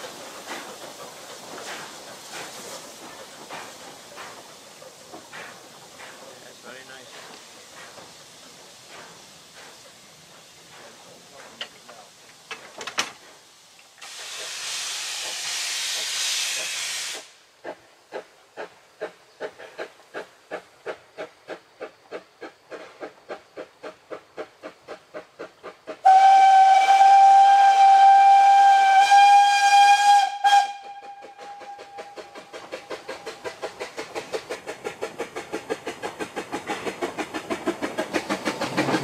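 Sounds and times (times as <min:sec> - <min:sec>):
steam hiss: 0:00.0 - 0:39.0
steam locomotive exhaust beats: 0:00.0 - 0:39.0
steam locomotive whistle: 0:26.0 - 0:32.4.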